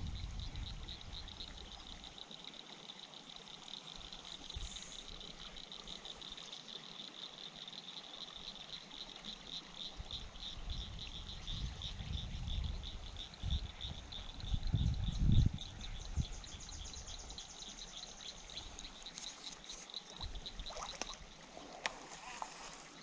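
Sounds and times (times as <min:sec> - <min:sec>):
wind rumble on microphone: 0:00.0 - 0:01.7, 0:10.0 - 0:17.4
insects or frogs chirping: 0:00.0 - 0:23.0.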